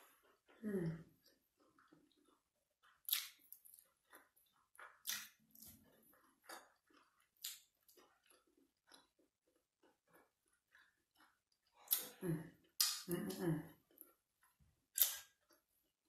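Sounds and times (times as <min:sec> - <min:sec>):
person chewing: 0:00.0 - 0:16.0
wet clicks and lip smacks: 0:02.9 - 0:09.1, 0:10.0 - 0:13.2, 0:14.9 - 0:15.6.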